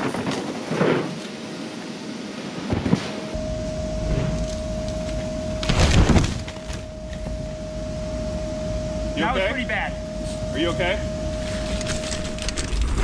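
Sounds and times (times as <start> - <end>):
airbag blower humming: 3.0 - 13.0
bike and rider crashing: 5.6 - 6.9.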